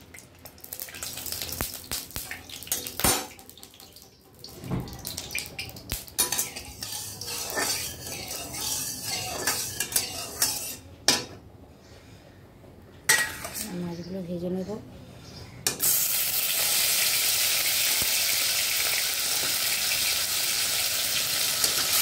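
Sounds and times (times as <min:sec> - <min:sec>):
metal spatula scraping a pan: 0:06.2 - 0:11.4, 0:13.1 - 0:13.7.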